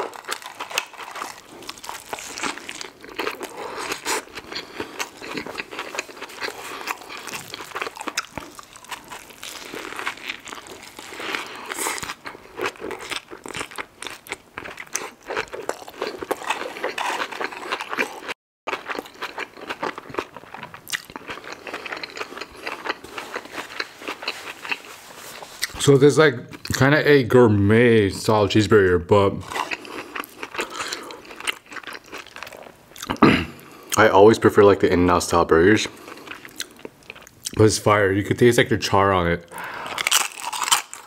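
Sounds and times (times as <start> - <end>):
chewing burger crunches: 0.0 - 25.8, 29.4 - 33.9, 39.6 - 41.0.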